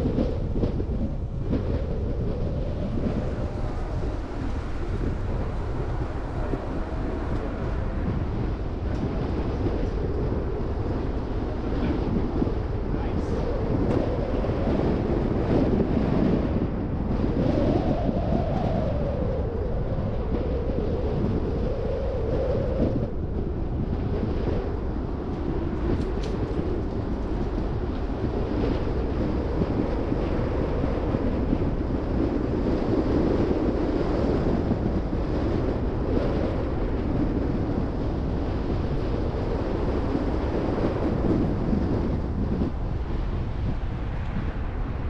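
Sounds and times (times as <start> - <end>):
car road and wind noise: 0.0 - 45.0
low wavering engine drone: 0.0 - 45.0.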